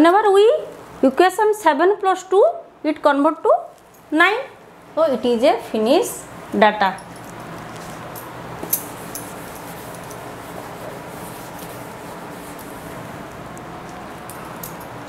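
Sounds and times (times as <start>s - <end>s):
room hiss: 0.0s - 15.0s
duster rubbing whiteboard: 8.9s - 13.2s.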